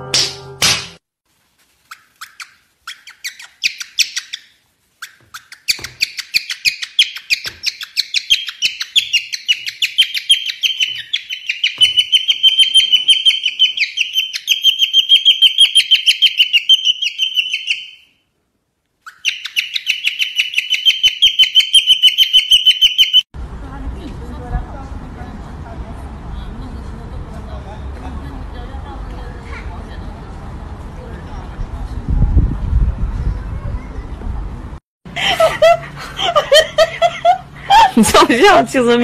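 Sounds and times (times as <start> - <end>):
cockatiel squeaky chirps: 1.8 - 18.1, 19.0 - 23.2.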